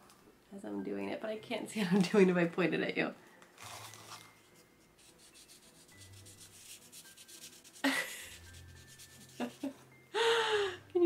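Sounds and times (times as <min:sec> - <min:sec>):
marker rubbing on paper: 0:05.0 - 0:09.7.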